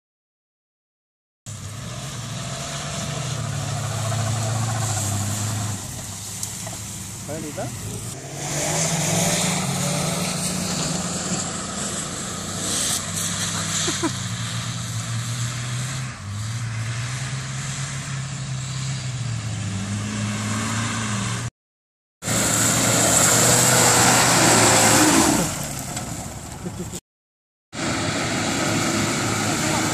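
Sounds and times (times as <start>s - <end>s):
suv engine running under load: 1.5s - 16.8s.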